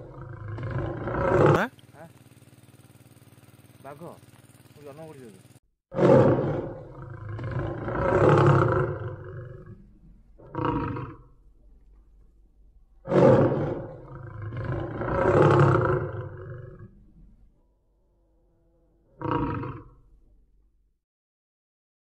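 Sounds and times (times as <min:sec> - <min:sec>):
big cat roaring: 0:00.0 - 0:01.8, 0:05.9 - 0:11.8, 0:12.9 - 0:17.4, 0:18.0 - 0:20.2
big cat growl: 0:00.0 - 0:01.9, 0:05.9 - 0:20.3.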